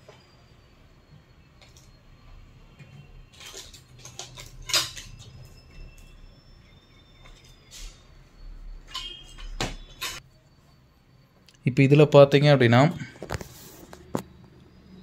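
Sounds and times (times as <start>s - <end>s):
faint high-pitched tone: 0.0s - 13.1s
handling clicks and rustles: 2.8s - 6.1s, 8.9s - 10.2s.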